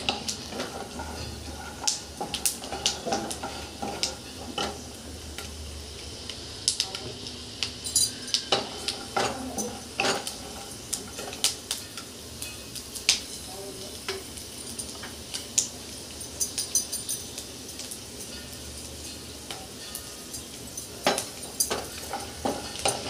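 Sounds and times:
spatula scraping a pan: 0.0s - 4.8s, 21.0s - 23.0s
faint sizzle of frying: 0.0s - 23.0s.

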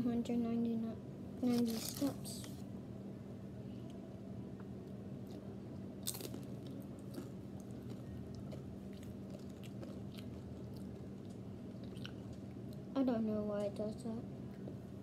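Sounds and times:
child chewing crunchy food: 1.5s - 2.2s, 5.2s - 12.9s.

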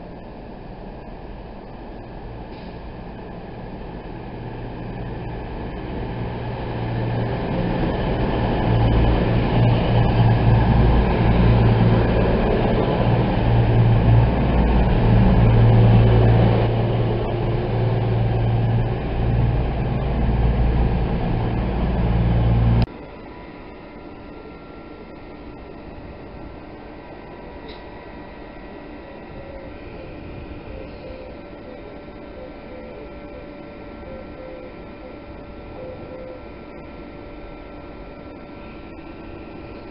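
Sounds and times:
train rumble: 0.0s - 22.9s
train diesel engines low tone: 0.0s - 39.9s.

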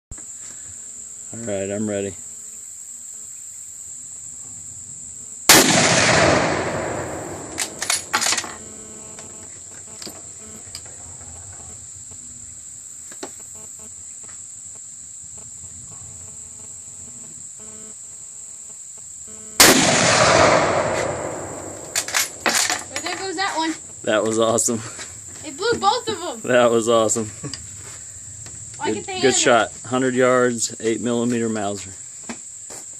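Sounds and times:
high insect buzz: 0.1s - 32.9s
rifle shots echoing: 5.5s - 8.6s, 19.6s - 22.9s.

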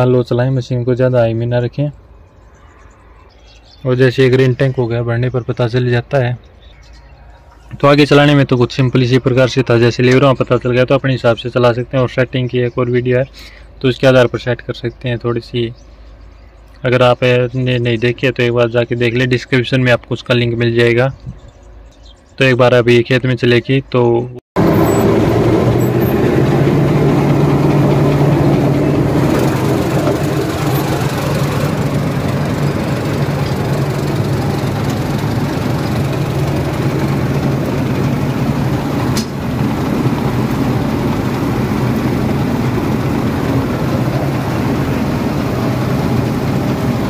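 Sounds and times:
combine harvester engine running: 24.6s - 47.0s.

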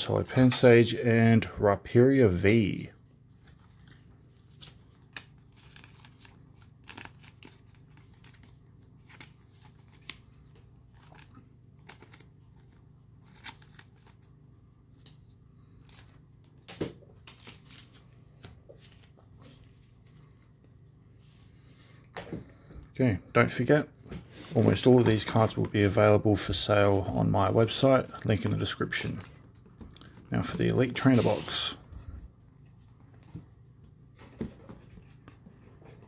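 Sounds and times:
low steady hum: 0.0s - 36.0s
card and plastic sleeve rustling: 2.4s - 22.4s, 24.2s - 27.9s, 28.6s - 32.0s.

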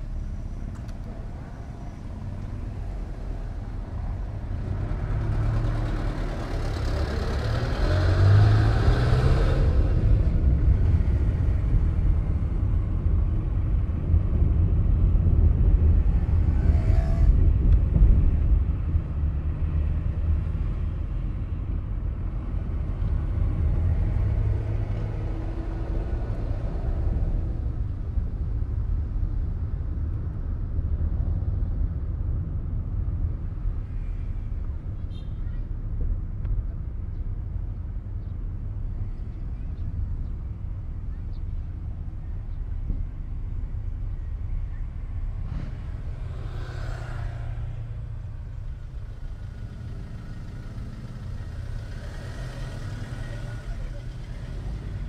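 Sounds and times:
car engine and tyres rumbling: 0.0s - 55.0s.

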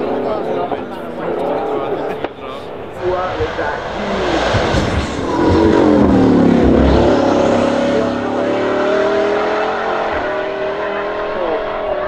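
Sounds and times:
car engine driving past: 2.8s - 12.0s.

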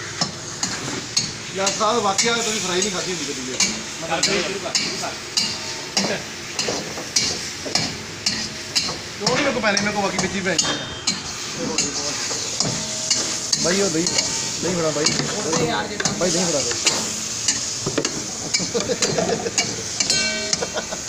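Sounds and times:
food sizzling in a wok: 0.0s - 21.0s.

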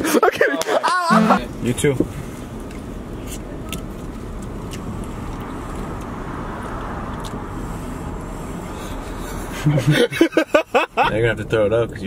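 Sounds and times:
road and tyre noise in car: 1.4s - 12.0s.

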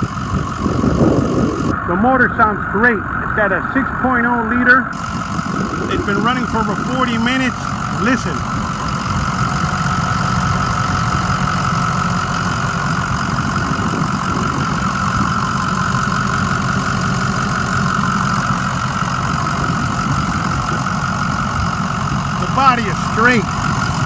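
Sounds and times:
diesel engine idling: 0.0s - 24.0s
high turbo whine: 0.0s - 24.0s
man talking: 1.7s - 5.0s, 5.8s - 8.5s, 22.4s - 23.6s.

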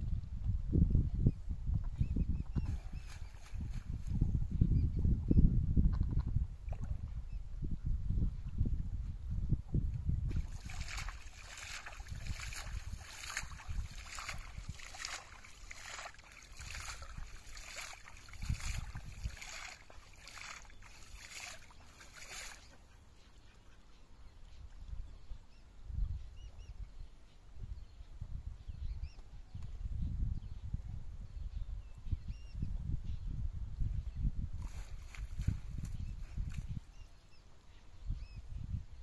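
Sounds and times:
net splashing through water: 10.3s - 22.7s.

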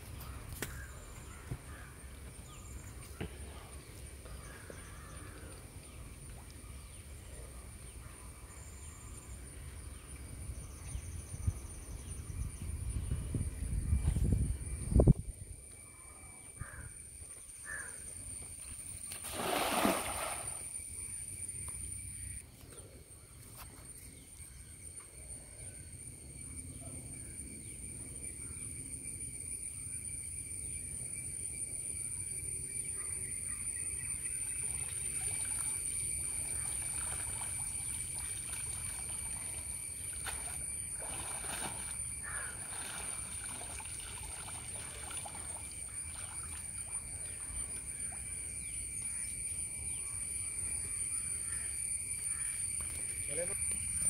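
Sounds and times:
water sloshing and trickling: 18.4s - 20.7s, 34.4s - 48.8s
net hauled from water: 19.1s - 20.6s, 35.2s - 47.0s
high-pitched insect drone: 24.4s - 54.0s.

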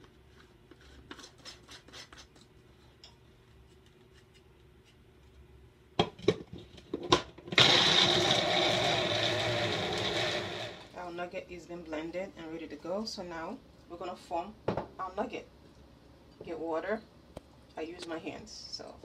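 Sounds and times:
blender running: 7.5s - 11.0s.

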